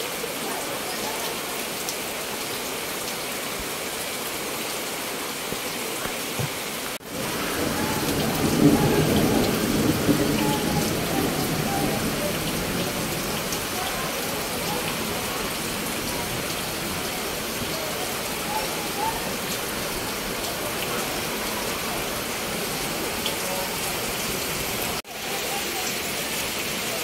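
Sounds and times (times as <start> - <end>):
heavy rain falling: 0.0 - 27.0.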